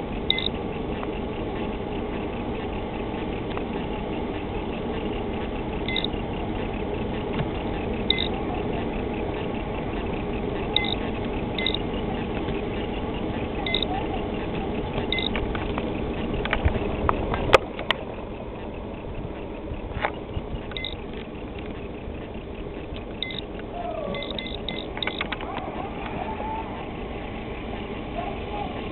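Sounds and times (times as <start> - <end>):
boat engine running: 0.0 - 28.9
sharp clicks: 0.2 - 26.2
short high beeps: 0.3 - 0.6, 5.8 - 6.2, 8.1 - 8.4, 10.6 - 12.1, 12.8 - 14.0, 15.1 - 15.4, 20.7 - 21.0, 23.2 - 23.5, 24.1 - 25.2.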